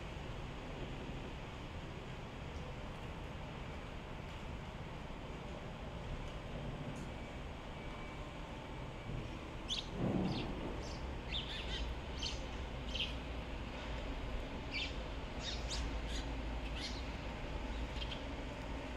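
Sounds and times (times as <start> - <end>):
sparrows chirping sharply: 9.7 - 13.2, 14.7 - 17.2.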